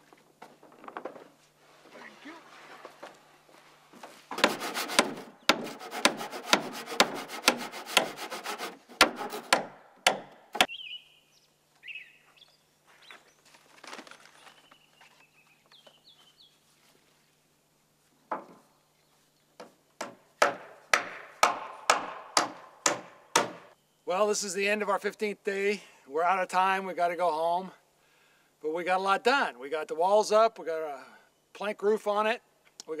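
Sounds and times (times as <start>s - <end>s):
sharp knocks: 4.3s - 8.2s, 8.9s - 10.7s, 19.6s - 23.7s
handsaw cutting wood: 4.4s - 10.7s
bird chirping: 10.6s - 13.4s, 14.4s - 16.6s.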